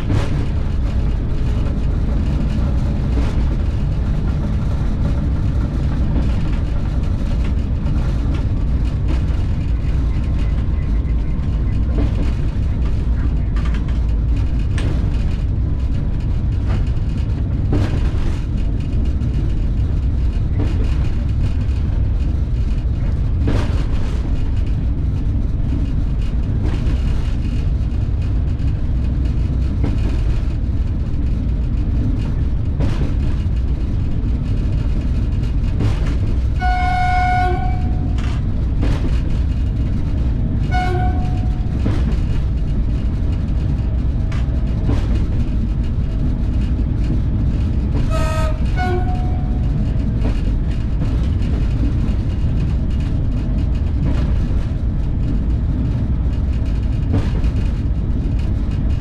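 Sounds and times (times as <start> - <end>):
train rumbling: 0.0 - 59.0
wheels knocking on track: 0.0 - 59.0
train horn: 36.6 - 38.4, 40.7 - 41.7, 48.1 - 49.8.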